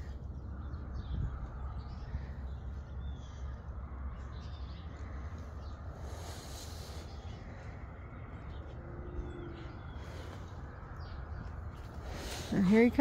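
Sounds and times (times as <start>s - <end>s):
distant bird calls: 0.0s - 13.0s
wind rumble on microphone: 0.0s - 13.0s.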